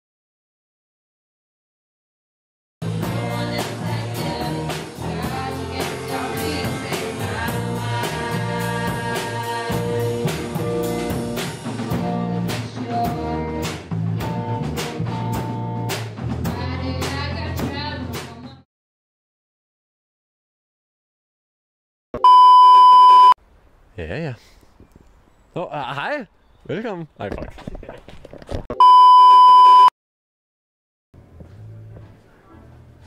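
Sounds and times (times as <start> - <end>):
band music with drums: 2.8 - 18.6
person singing: 3.0 - 10.3, 12.0 - 13.6.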